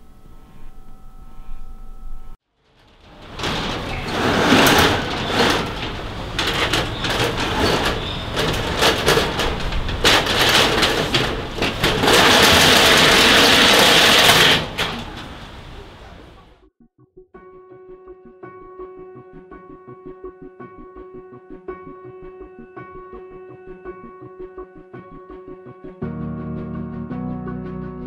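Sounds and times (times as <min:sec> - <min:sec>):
metal roller shutter rattling open: 0:02.6 - 0:16.4.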